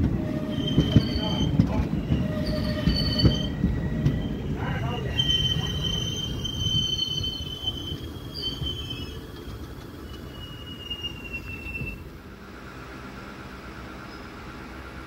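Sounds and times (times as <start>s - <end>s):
low rumble of train coaches: 0.0s - 15.0s
train wheels squealing on rails: 0.1s - 12.1s.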